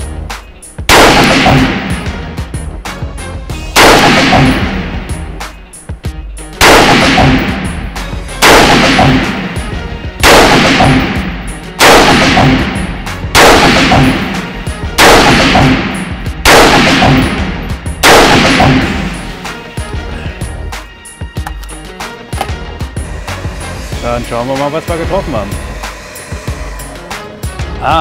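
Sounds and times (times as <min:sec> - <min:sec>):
rifle shots echoing: 0:00.9 - 0:02.1, 0:03.8 - 0:05.0, 0:06.6 - 0:07.7, 0:08.4 - 0:09.6, 0:10.2 - 0:19.4.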